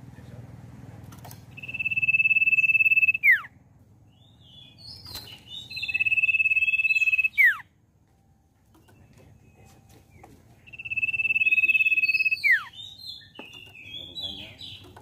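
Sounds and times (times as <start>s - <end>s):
bird whistling and chirping: 1.5s - 3.5s, 4.1s - 7.7s, 10.6s - 15.0s.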